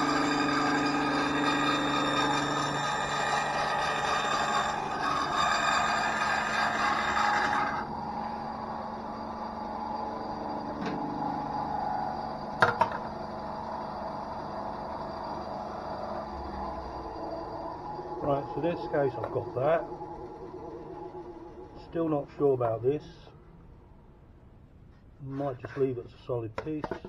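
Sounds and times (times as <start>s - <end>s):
bandsaw cutting plywood: 0.0s - 7.9s
bandsaw running idle: 0.0s - 7.9s.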